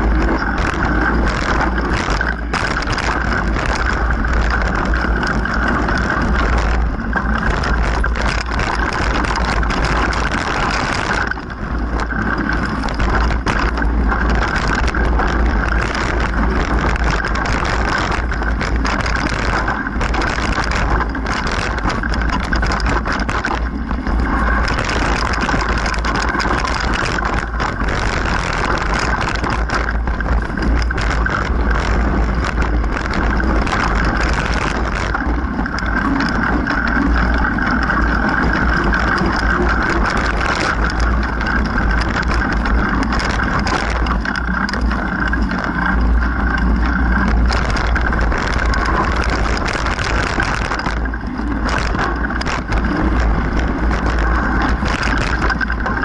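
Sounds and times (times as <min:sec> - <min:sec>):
bike rattling over rocks: 0:00.0 - 0:56.0
wind rumble on microphone: 0:00.0 - 0:56.0.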